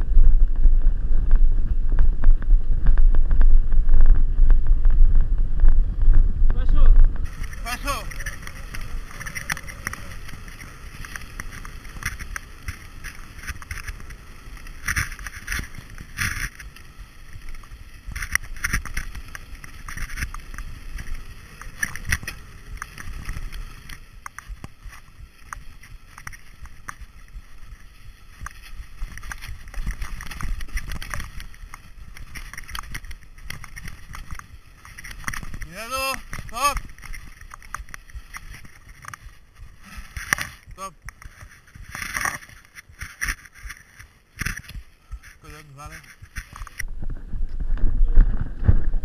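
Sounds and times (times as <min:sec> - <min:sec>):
wind buffeting microphone: 0:00.0 - 0:14.8, 0:46.8 - 0:49.0
bike rattling over rough ground: 0:00.0 - 0:49.0.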